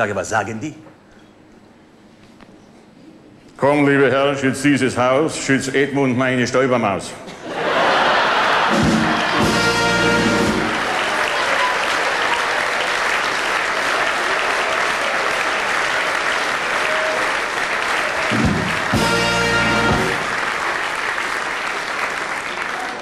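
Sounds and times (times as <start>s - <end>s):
audience applauding: 7.6s - 23.0s
brass band chords: 8.6s - 11.2s, 18.0s - 20.7s.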